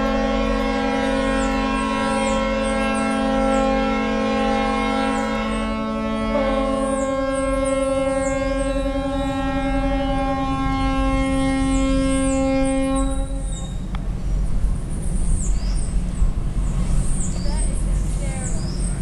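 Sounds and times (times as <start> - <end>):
ship's horn blast: 0.0 - 13.9.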